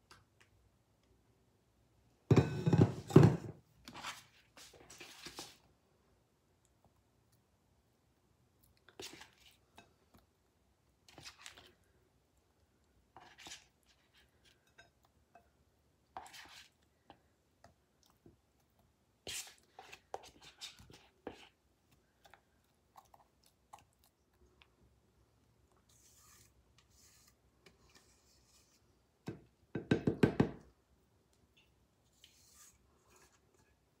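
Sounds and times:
spatula scraping a mixing bowl: 0:16.2 - 0:16.8, 0:19.3 - 0:21.6, 0:25.9 - 0:28.9, 0:32.1 - 0:33.8.

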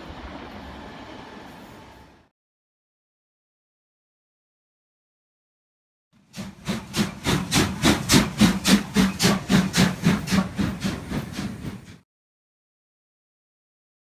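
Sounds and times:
steam locomotive exhaust chuffing: 0:06.2 - 0:12.0.

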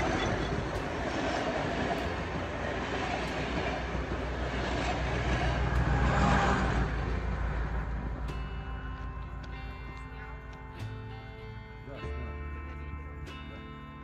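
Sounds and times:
train wheels clattering on rails: 0:00.0 - 0:10.9.

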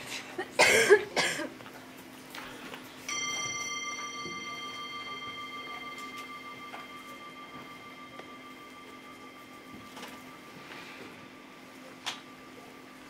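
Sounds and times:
small metal bell ringing: 0:03.1 - 0:13.0.

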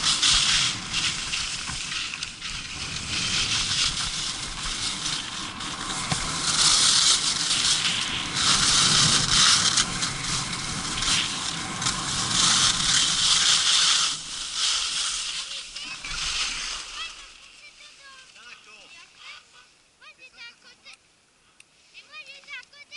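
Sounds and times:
skis scraping over icy snow: 0:00.0 - 0:19.5.

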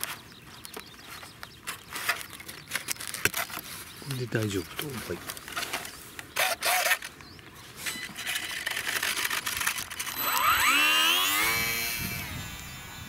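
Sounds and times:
model plane motor whine: 0:08.2 - 0:13.0.

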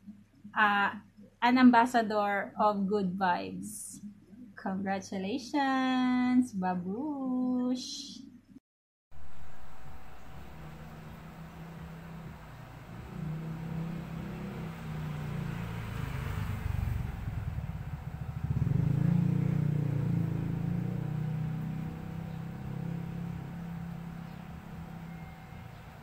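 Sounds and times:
vehicle engine rumble passing by: 0:09.2 - 0:26.0.

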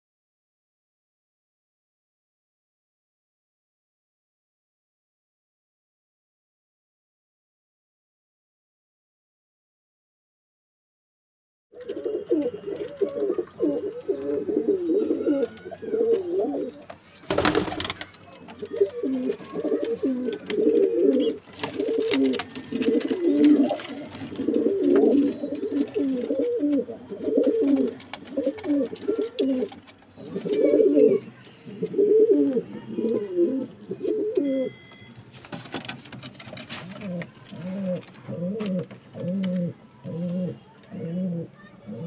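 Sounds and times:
pigeons cooing: 0:11.8 - 0:35.1, 0:36.4 - 0:42.0.

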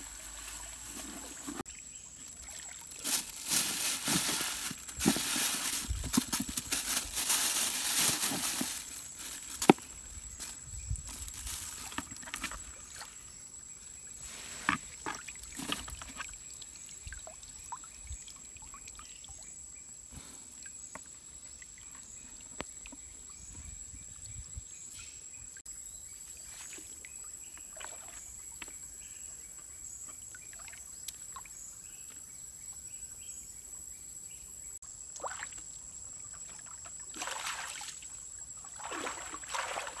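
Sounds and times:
plastic bag rustling: 0:00.0 - 0:01.7, 0:02.9 - 0:09.8, 0:11.1 - 0:12.5
river water splashing: 0:36.6 - 0:40.0.

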